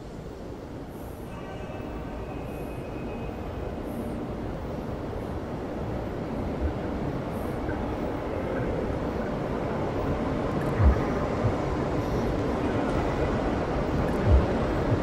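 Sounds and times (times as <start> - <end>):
low rumbling soundtrack drone: 1.2 - 15.0.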